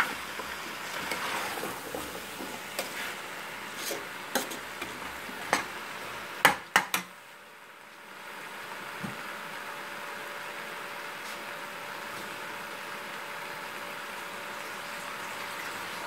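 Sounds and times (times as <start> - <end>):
spoon stirring vegetables in pot: 0.0 - 5.8.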